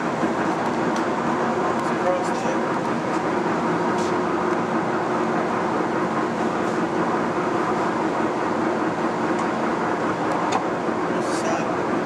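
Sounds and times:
constant hum: 0.0 - 12.0
lathe motor whirring: 0.0 - 12.0.

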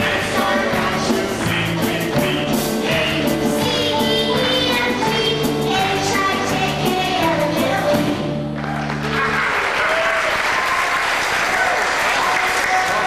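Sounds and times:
live song with piano and drums: 0.0 - 10.2
audience applause: 8.6 - 13.0.

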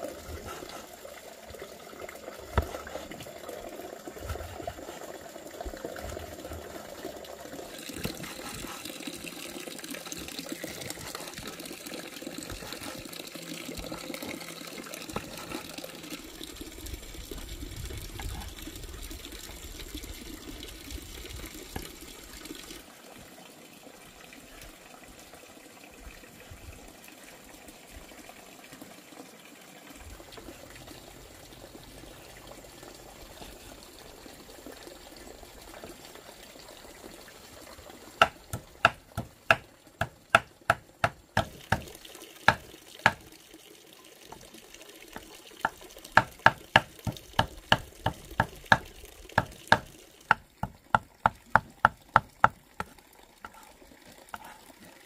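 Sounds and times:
water running from a spout: 0.0 - 55.0
cleaver chopping on wooden board: 38.2 - 41.9, 46.2 - 50.4.

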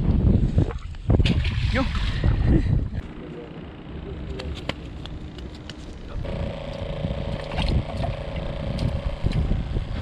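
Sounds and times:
wind rumbling on microphone: 0.0 - 3.1, 6.0 - 10.0
aerator pump buzzing hum: 2.9 - 10.0.

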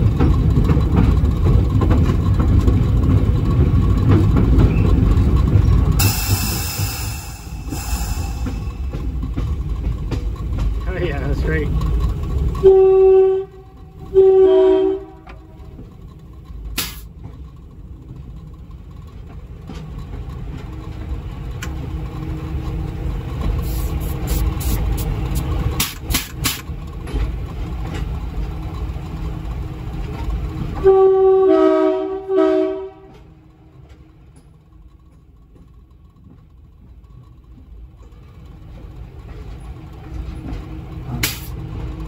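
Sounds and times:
diesel railcar rumbling past: 0.0 - 42.0
train air horn blasts: 12.6 - 15.6, 30.8 - 33.3.

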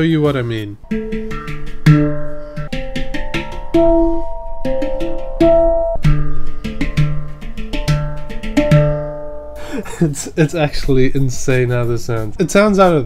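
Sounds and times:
handpan notes ringing: 0.8 - 9.6.

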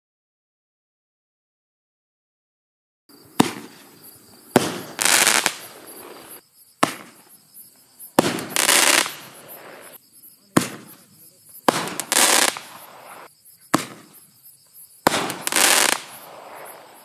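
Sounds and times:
hissing crackle of fireworks: 3.1 - 14.3, 15.0 - 17.0
firework launch bangs: 3.3 - 7.3, 8.2 - 11.0, 11.6 - 14.2, 15.0 - 17.0.

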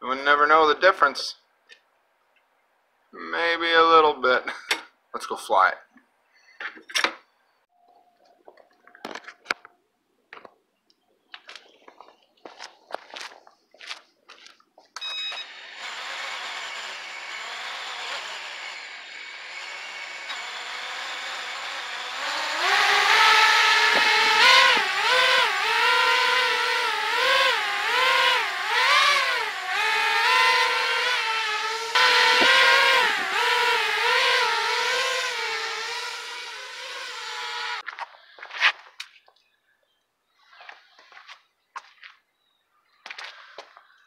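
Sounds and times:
drone propellers whining: 15.0 - 37.8.

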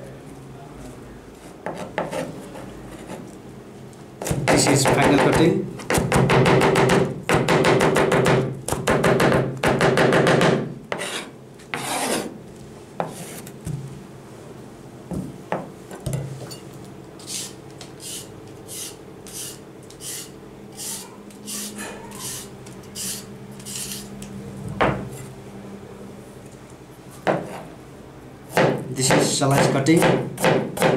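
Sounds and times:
knife chopping on plastic board: 4.2 - 10.7, 28.5 - 30.9
knife scraping vegetable skin: 17.2 - 24.1.

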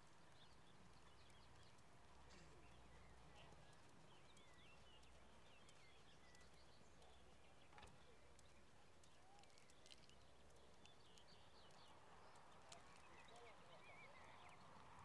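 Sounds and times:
small bird chirps: 2.4 - 15.0
soft ticks: 3.4 - 13.5.

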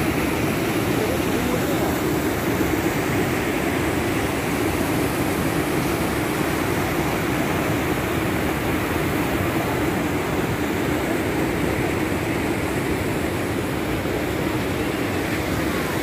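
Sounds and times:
water rushing over rocks: 0.0 - 16.0.

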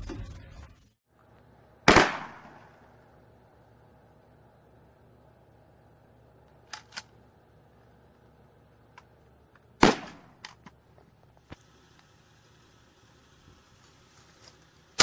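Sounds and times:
gunshot: 1.9 - 2.8, 9.8 - 10.4.

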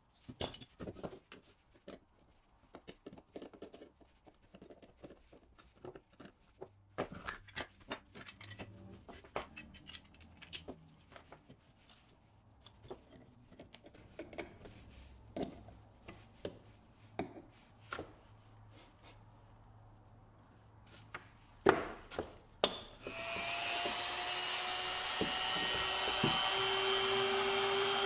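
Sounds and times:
clicks of toy parts handled: 7.2 - 10.8.

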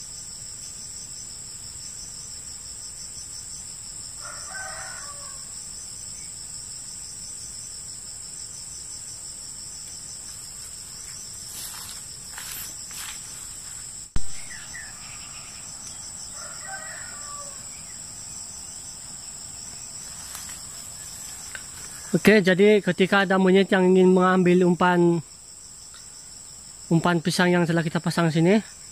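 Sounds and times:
insects trilling: 0.0 - 28.9
rooster crowing: 4.2 - 5.6, 14.4 - 18.1.

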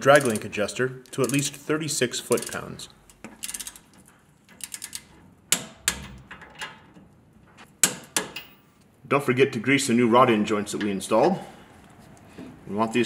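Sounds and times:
socket wrench ratcheting: 1.1 - 1.6, 2.2 - 3.9, 4.5 - 6.2.

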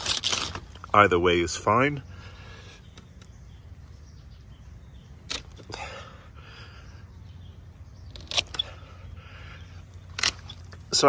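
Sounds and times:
low steady background noise: 0.0 - 11.0
pruning shears snipping: 5.2 - 5.8, 8.1 - 8.9, 10.0 - 11.0.

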